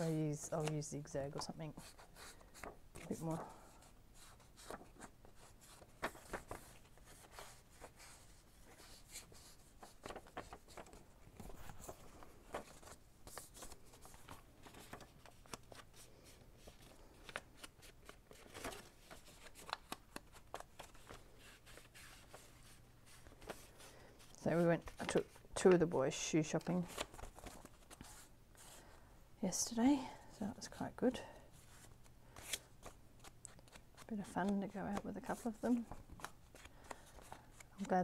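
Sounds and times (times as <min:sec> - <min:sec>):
paper rustling: 0:00.0 - 0:25.4, 0:26.6 - 0:28.8, 0:31.6 - 0:38.0.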